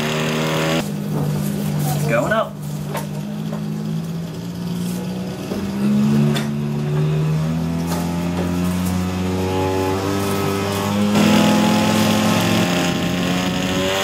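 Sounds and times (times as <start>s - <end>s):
small propeller engine running: 10.3s - 14.0s.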